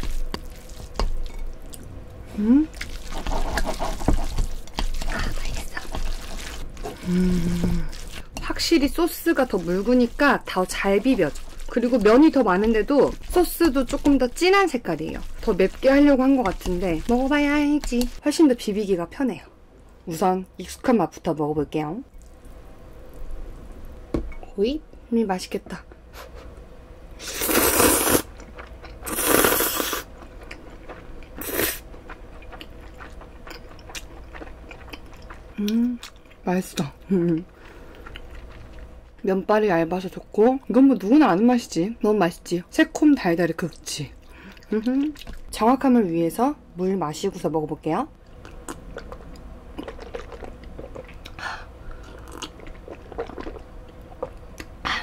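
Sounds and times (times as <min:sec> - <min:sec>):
person slurping noodles: 0:27.2 - 0:28.3, 0:29.0 - 0:30.1, 0:31.4 - 0:31.8
quiet chewing: 0:29.8 - 0:38.9, 0:48.2 - 0:54.8.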